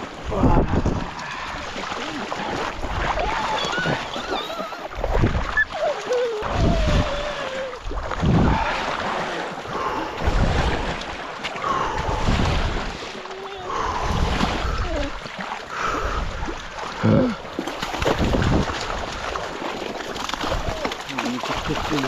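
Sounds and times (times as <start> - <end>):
wind on microphone: 0.0 - 1.8, 2.4 - 9.0, 9.7 - 11.1, 11.8 - 15.2, 17.9 - 19.4
water splashing around wading legs: 0.0 - 22.0.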